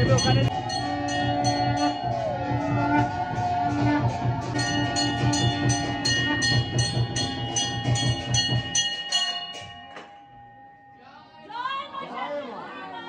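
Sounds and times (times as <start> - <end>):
steady drum beat: 0.0 - 9.9
bells struck rhythmically: 0.0 - 11.8.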